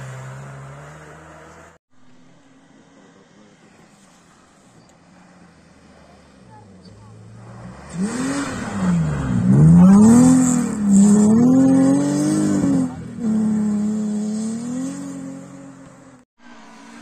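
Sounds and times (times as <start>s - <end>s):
rally car engine revving: 0.0s - 1.8s, 5.8s - 17.0s.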